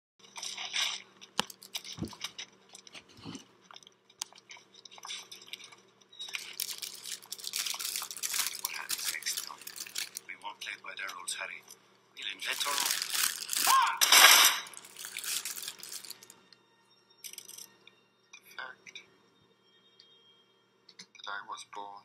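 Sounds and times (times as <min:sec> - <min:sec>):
paper wrapper rustling and crinkling: 0:01.4 - 0:02.4, 0:06.3 - 0:10.3, 0:12.4 - 0:16.3.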